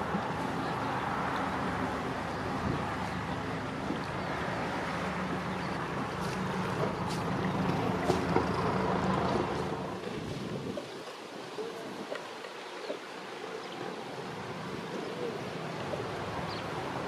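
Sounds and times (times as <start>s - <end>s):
wind noise: 0.0s - 11.1s
boat engine drone: 0.0s - 17.0s.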